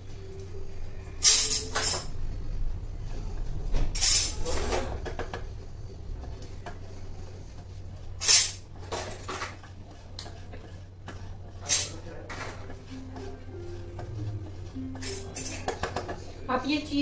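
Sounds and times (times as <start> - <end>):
cheese scraping on metal grater: 8.1 - 12.7.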